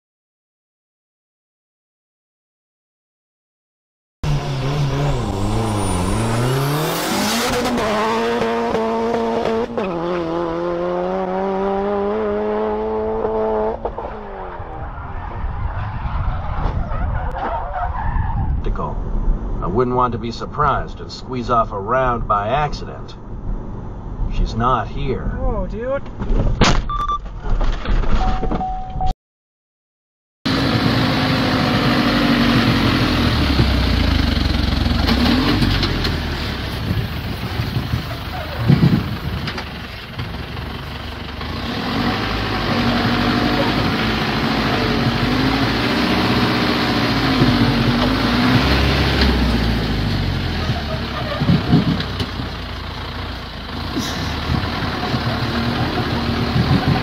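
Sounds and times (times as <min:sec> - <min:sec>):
truck engine labouring: 0:04.2 - 0:18.0, 0:30.5 - 0:57.0.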